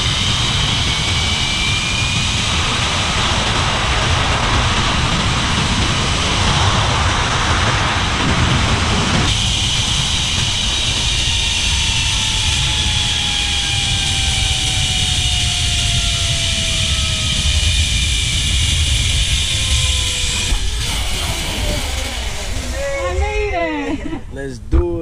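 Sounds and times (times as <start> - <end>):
pulley whine: 0.0 - 24.2
wind on microphone: 0.0 - 24.3
zip-line trolley on cable: 5.6 - 24.0.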